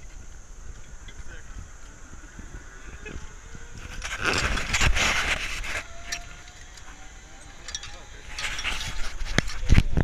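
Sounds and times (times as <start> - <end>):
faint thin whine: 0.0 - 10.0
metal hardware clinking and rattling: 4.0 - 10.0.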